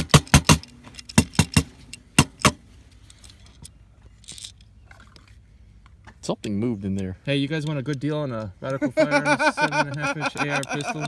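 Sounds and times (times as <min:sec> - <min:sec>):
metal parts rattling inside gun receiver: 0:09.6 - 0:11.0.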